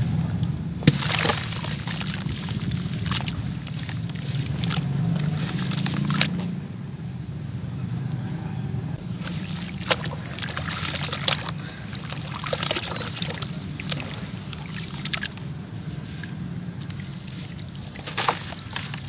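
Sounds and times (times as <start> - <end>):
hands sloshing wet sand: 0.0 - 6.4, 9.0 - 19.0
water splashing and dripping: 0.0 - 6.4, 9.0 - 19.0
water pouring off block: 0.8 - 6.3.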